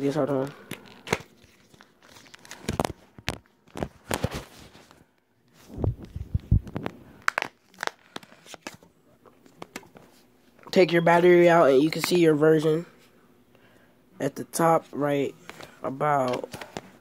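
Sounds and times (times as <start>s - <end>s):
smartphone handling clicks and rustles: 0.3s - 5.0s, 6.0s - 10.2s, 15.4s - 17.0s.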